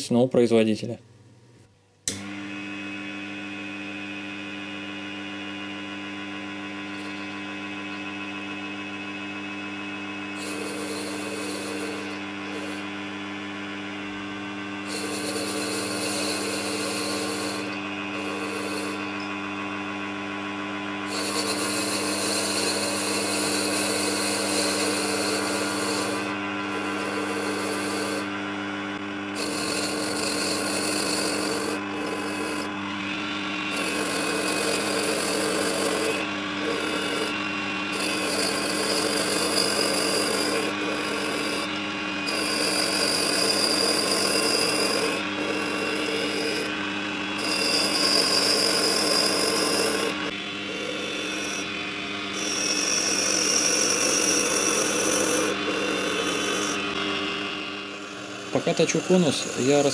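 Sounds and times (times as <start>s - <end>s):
lathe motor hum: 2.1s - 59.9s
cutting tool scraping brass: 10.3s - 13.0s, 14.8s - 19.4s, 21.0s - 28.4s, 29.3s - 51.7s, 52.3s - 57.0s, 58.0s - 59.9s.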